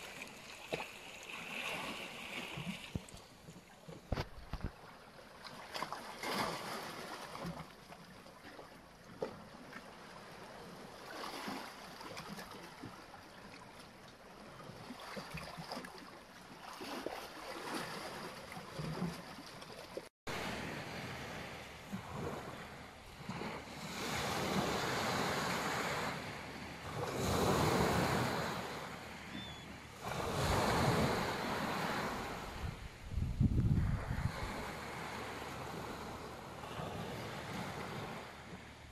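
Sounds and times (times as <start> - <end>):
water lapping among rocks: 0.0 - 20.1
small waves breaking on beach: 0.0 - 33.1, 33.8 - 38.9.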